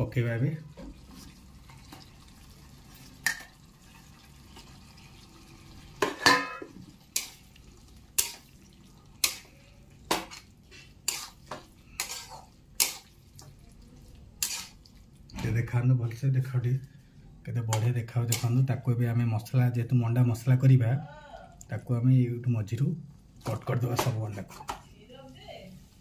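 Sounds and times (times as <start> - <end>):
metal spatula scraping a pan: 6.0 - 8.6, 9.2 - 13.2, 14.4 - 14.9, 17.7 - 18.7.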